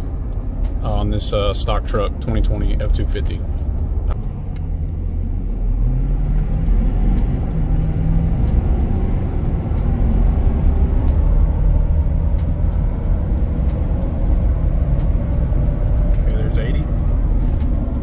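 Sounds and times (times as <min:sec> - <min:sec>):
diesel truck engine accelerating: 0:00.0 - 0:18.0.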